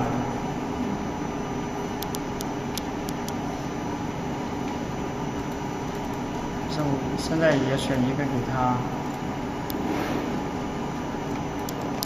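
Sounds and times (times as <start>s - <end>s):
machine hum and fan hiss: 0.0s - 12.0s
light machine clicks: 2.0s - 3.4s, 11.3s - 12.0s.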